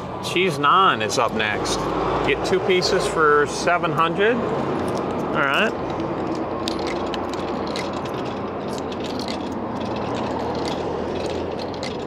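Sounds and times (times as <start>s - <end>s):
coins rattling through vending machine: 4.9s - 12.0s.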